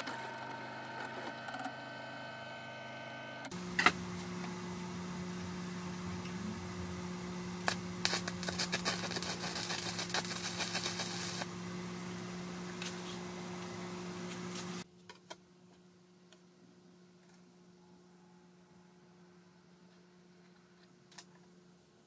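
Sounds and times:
steady welder hum: 0:00.0 - 0:14.9
welding arc crackling: 0:06.1 - 0:11.5.

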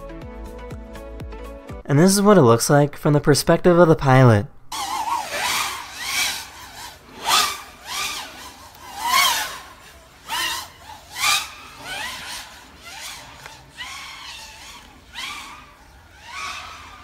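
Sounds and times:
racing drone motors whining: 0:04.7 - 0:17.0.

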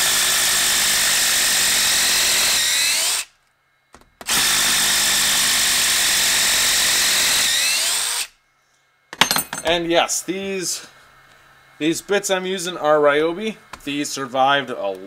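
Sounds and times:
impact driver hammering screws: 0:04.0 - 0:08.3.

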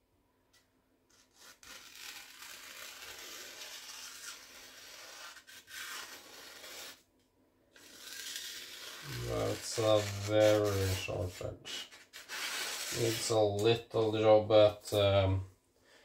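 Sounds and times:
cleaver slicing paper: 0:01.1 - 0:07.0, 0:07.8 - 0:13.6.

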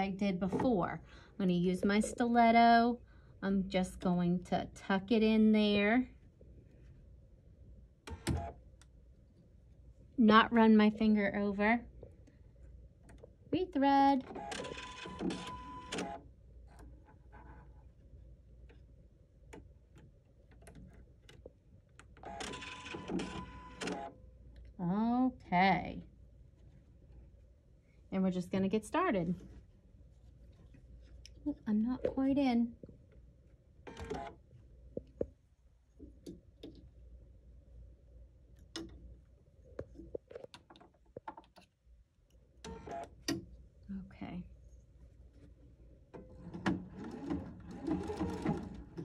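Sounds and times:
low steady hum: 0:00.0 - 0:49.0
sewing machine whirring: 0:14.2 - 0:16.2, 0:46.5 - 0:49.0.

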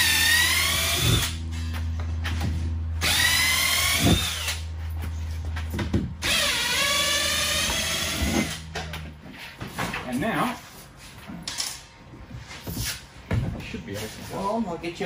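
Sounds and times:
power drill motor whine: 0:00.0 - 0:01.5, 0:03.0 - 0:04.7, 0:06.2 - 0:08.7.

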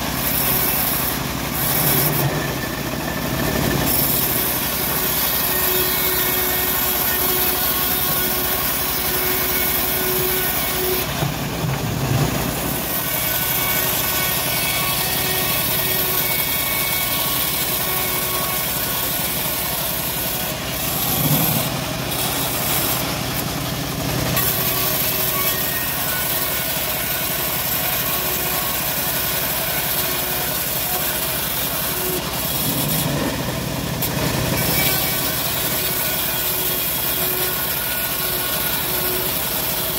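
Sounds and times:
band saw ripping wood: 0:03.8 - 0:39.9.

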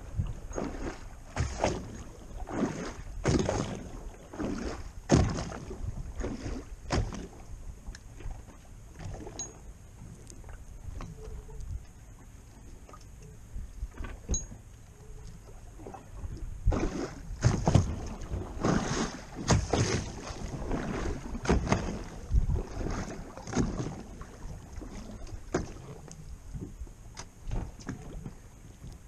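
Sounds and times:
water lapping against boat: 0:00.0 - 0:29.0.

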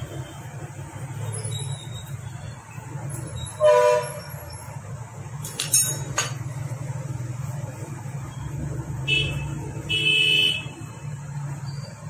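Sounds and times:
loud horn honk: 0:03.6 - 0:04.2, 0:09.1 - 0:10.7
metallic tool clinks: 0:05.4 - 0:06.4.

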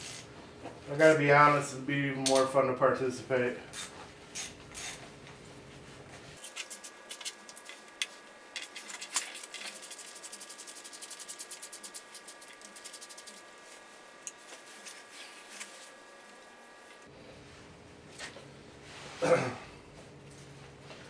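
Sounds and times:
tools rubbing and scraping: 0:03.7 - 0:05.1, 0:06.3 - 0:17.1.

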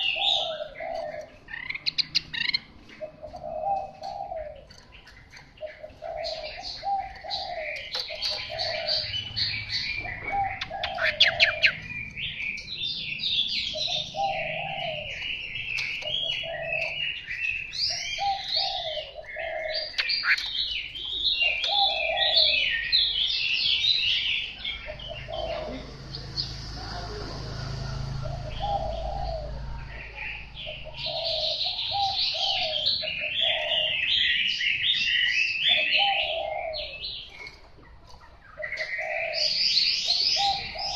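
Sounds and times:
low coo-like note: 0:25.5 - 0:30.2.

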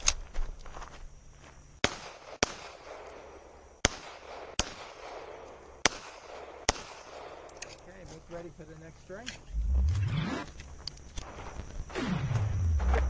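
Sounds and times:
pistol shots: 0:01.8 - 0:07.6.

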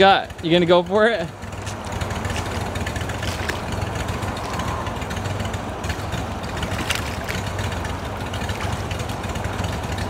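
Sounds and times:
engine low drone: 0:00.0 - 0:10.0.

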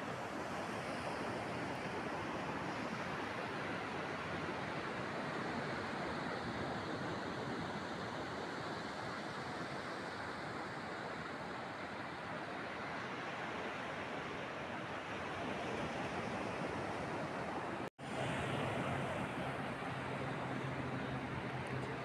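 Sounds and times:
wind: 0:00.0 - 0:22.0
ocean surf breaking: 0:05.0 - 0:22.0.

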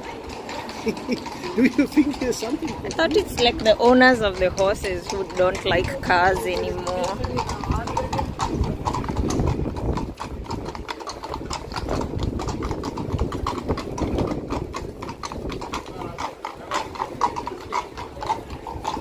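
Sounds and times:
horse hooves on hard street: 0:00.0 - 0:19.0
low rumble of traffic: 0:00.0 - 0:19.0.

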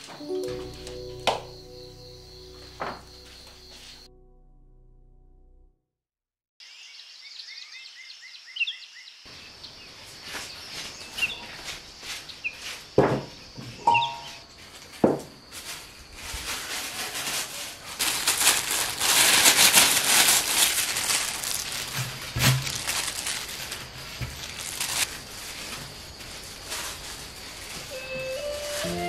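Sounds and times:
thin plastic crinkling: 0:16.2 - 0:29.0.

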